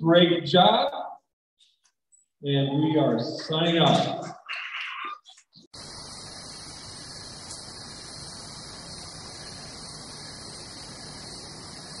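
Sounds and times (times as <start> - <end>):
electronic static hiss: 4.6 - 12.0.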